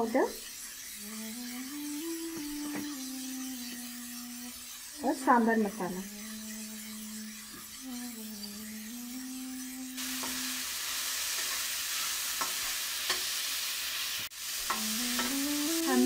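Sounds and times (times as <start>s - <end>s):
metal spoon stirring: 0.0s - 13.3s, 14.6s - 16.0s
food sizzling in hot oil: 0.0s - 16.0s
low hum rising in pitch: 6.0s - 10.6s
spoon tapping on pan: 12.4s - 13.3s.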